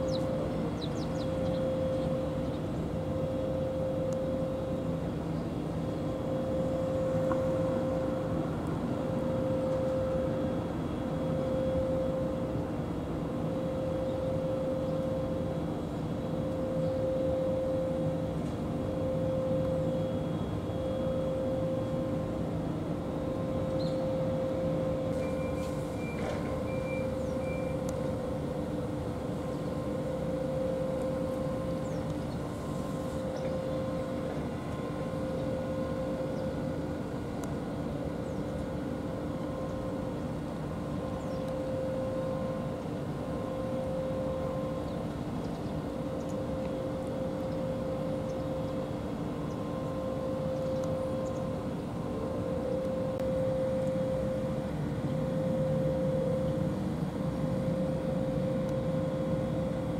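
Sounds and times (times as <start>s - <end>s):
engine droning hum: 0.0s - 59.9s.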